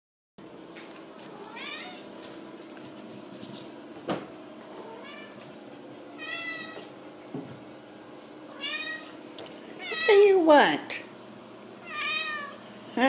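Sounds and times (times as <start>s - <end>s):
cat meowing: 1.4s - 2.0s, 8.5s - 9.2s, 11.8s - 12.6s.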